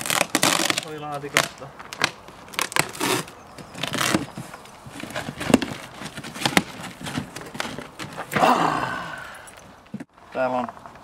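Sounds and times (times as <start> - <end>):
plastic wrapping crackling: 0.0 - 8.1
cardboard box rustling: 2.3 - 8.4.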